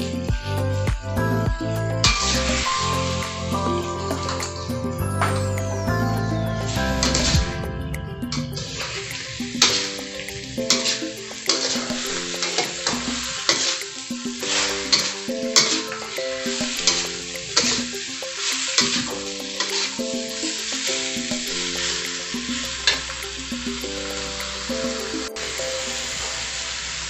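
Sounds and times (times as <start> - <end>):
food sizzling in a wok: 0.0 - 7.6, 8.3 - 27.0
background music melody: 0.0 - 27.0
metal spatula scraping a pan: 8.6 - 23.2.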